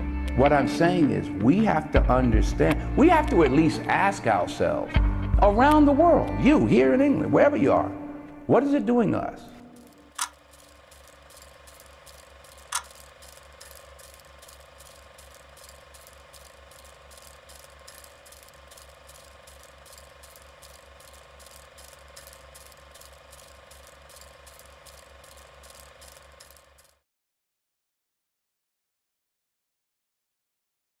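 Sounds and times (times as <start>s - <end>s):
sharp click: 9.8s - 15.0s
faint mechanical ticking: 9.8s - 27.0s.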